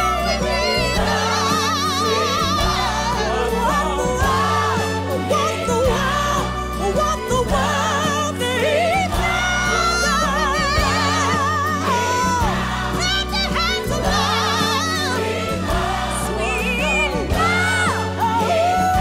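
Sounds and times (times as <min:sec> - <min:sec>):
song with vibrato singing: 0:00.0 - 0:19.0.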